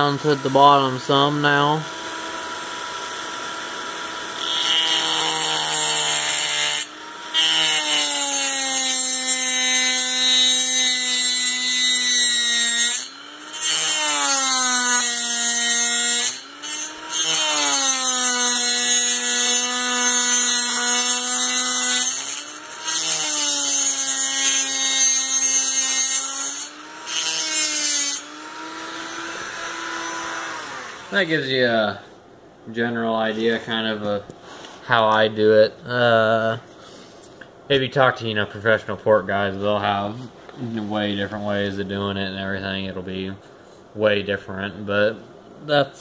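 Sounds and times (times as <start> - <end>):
rotary tool grinding metal: 0.0 - 31.5.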